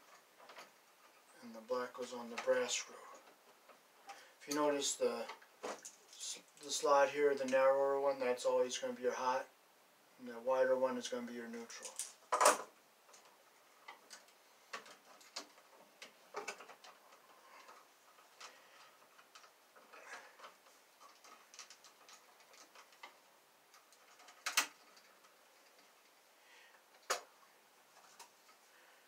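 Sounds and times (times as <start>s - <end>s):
wires being handled: 2.2s - 7.6s, 11.7s - 28.7s.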